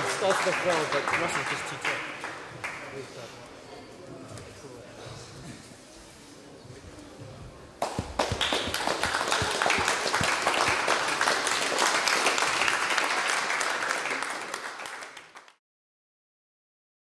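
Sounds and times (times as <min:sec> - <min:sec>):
crowd applauding: 0:00.0 - 0:02.8, 0:07.8 - 0:15.6.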